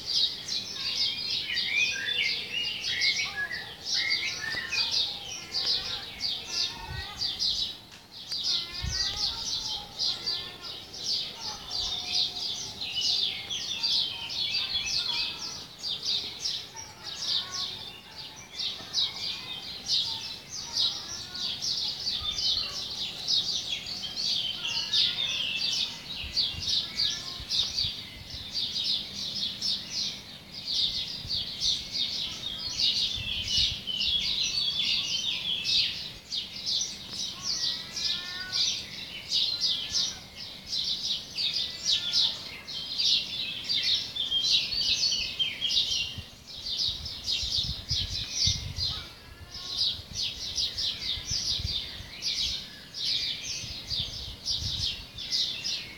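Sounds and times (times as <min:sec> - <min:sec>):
small birds chirping and twittering: 0:00.0 - 0:55.9.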